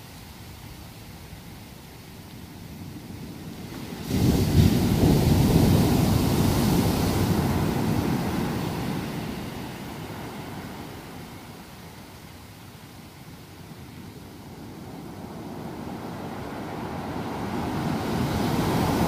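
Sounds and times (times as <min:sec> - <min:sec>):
ocean wave crashing on beach: 0:03.5 - 0:11.8, 0:14.5 - 0:19.0.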